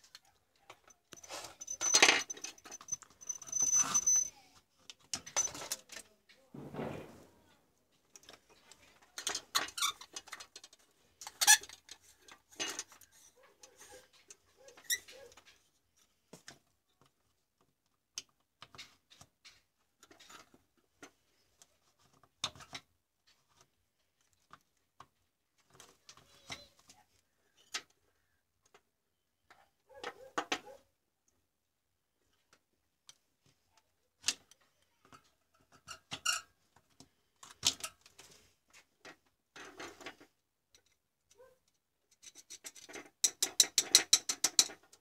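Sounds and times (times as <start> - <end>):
rustling: 5.4 - 9.2.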